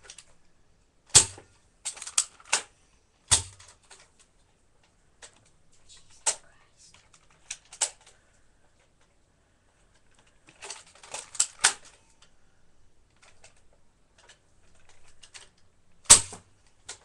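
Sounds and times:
sharp loud plastic clack: 1.1s - 2.7s, 3.3s - 4.0s, 16.0s - 17.0s
toy blaster plastic clicks: 1.1s - 2.7s, 7.2s - 8.1s, 10.2s - 12.0s.

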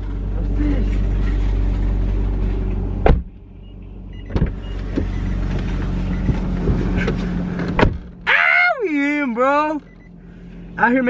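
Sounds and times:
low car cabin hum: 0.0s - 11.0s
sharp thumps: 3.0s - 3.4s.

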